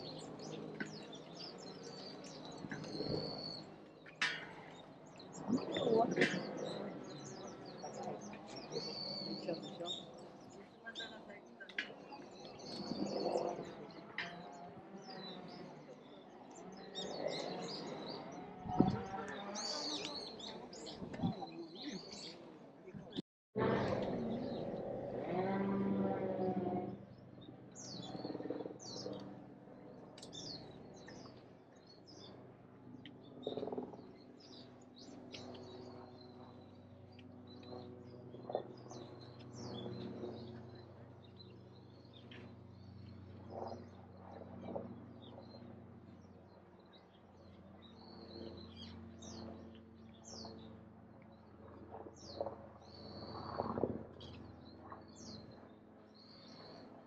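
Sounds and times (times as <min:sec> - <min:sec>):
small birds chirping: 0:00.0 - 0:23.2, 0:26.8 - 0:51.5, 0:52.2 - 0:57.0.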